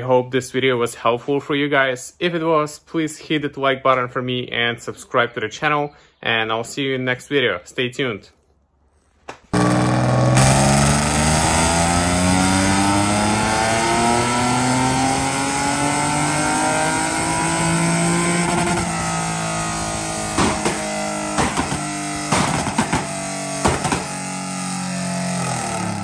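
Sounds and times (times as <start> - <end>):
exhaust pops: 9.4 - 15.7, 16.5 - 26.0
car engine revving on a dyno: 9.6 - 26.0.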